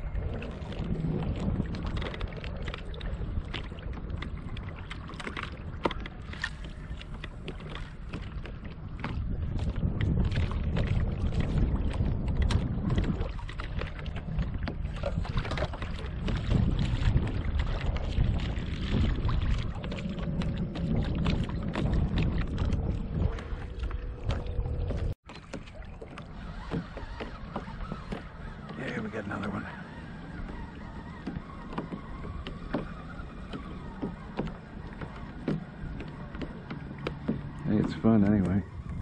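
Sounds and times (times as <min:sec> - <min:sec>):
waves slapping kayak hull: 0:00.0 - 0:39.0
wind buffeting microphone: 0:00.0 - 0:39.0.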